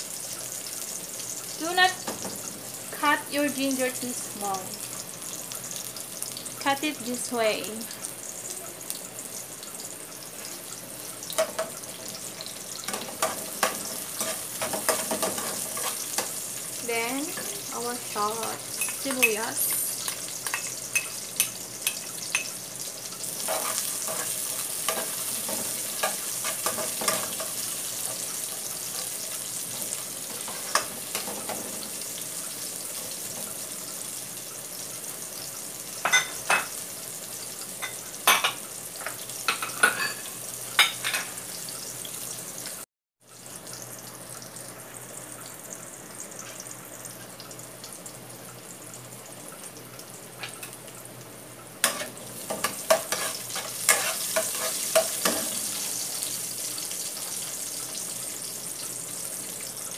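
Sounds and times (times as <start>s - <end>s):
sizzling in hot oil: 0.0s - 59.9s
metal spoon clinking on pot: 20.4s - 22.5s.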